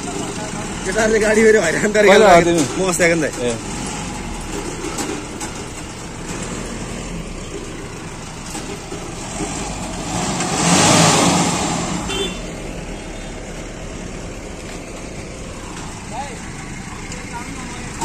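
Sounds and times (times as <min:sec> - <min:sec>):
truck engine idling: 0:00.0 - 0:18.0
vehicle passing by: 0:03.4 - 0:18.0.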